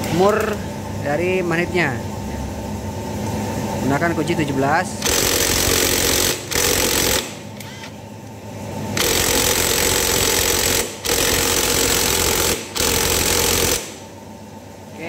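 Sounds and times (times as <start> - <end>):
impact wrench rattling: 5.0 - 7.4, 9.0 - 14.0.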